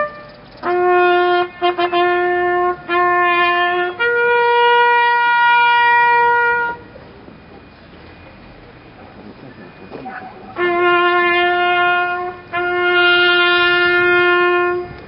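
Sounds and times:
solo trumpet call: 0.0 - 6.9, 9.9 - 15.0.

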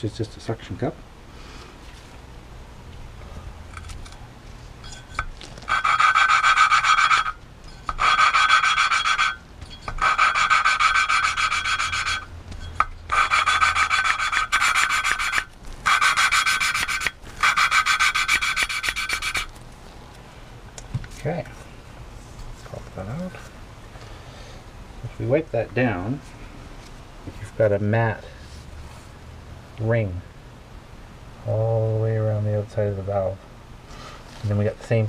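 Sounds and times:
valve lapping gritty rasp: 5.6 - 19.5.

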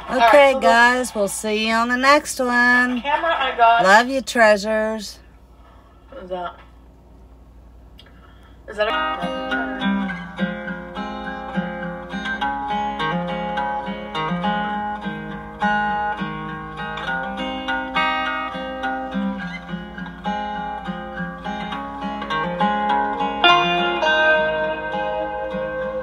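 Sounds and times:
plucked guitar music: 8.7 - 26.0.

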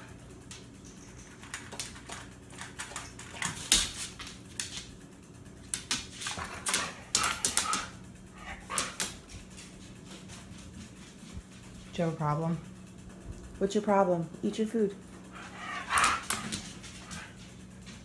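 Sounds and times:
dog claws clicking on wood floor: 0.4 - 5.0, 5.6 - 11.0, 15.8 - 18.0.

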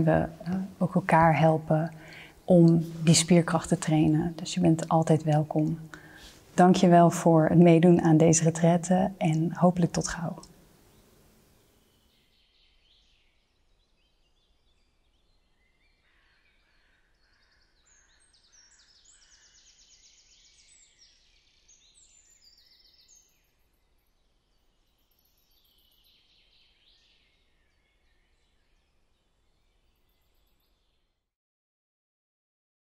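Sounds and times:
small birds singing: 7.7 - 31.1.

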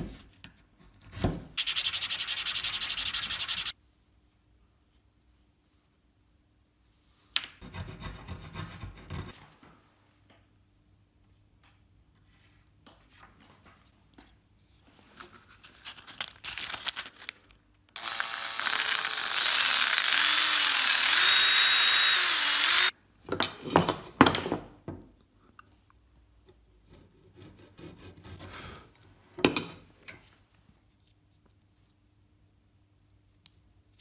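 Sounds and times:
wooden parts rubbed on workbench: 1.6 - 3.7
small power tool on wood: 18.0 - 22.9.

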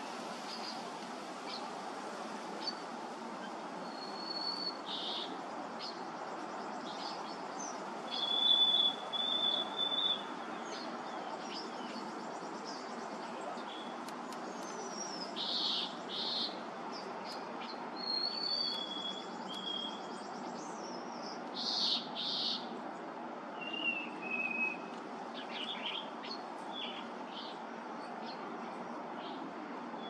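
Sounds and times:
background noise: 0.0 - 30.0
bird whistling: 8.1 - 10.3, 18.0 - 20.0, 23.6 - 24.9
bird chirps: 8.1 - 13.9, 14.5 - 22.6.

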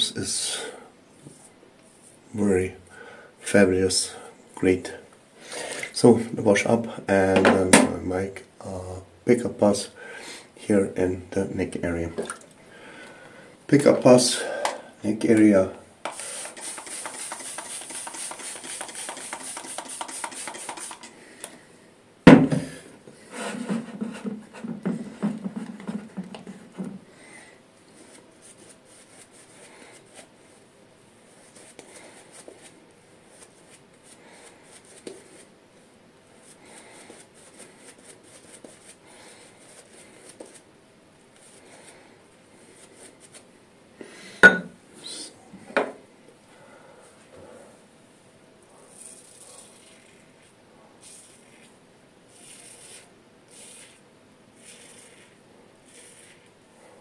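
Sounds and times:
shaving brush swishing lather: 16.1 - 21.1, 31.3 - 35.5, 48.9 - 54.0, 54.6 - 56.6
sharp knock: 22.3 - 22.7.

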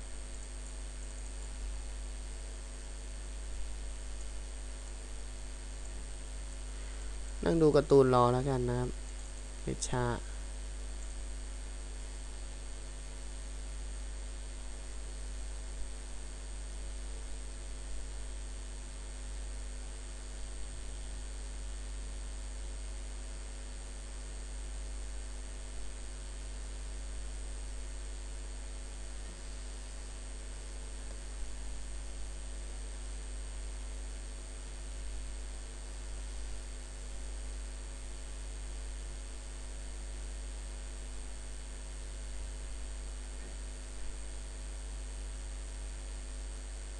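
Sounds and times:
low electrical hum: 0.0 - 46.9.

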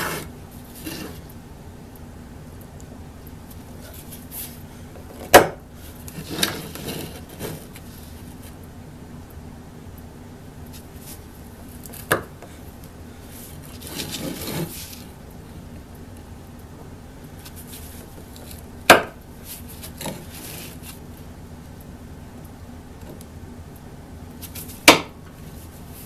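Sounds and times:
blade scraping across wood: 0.0 - 1.2, 6.1 - 8.1, 13.7 - 15.1, 19.8 - 21.0.

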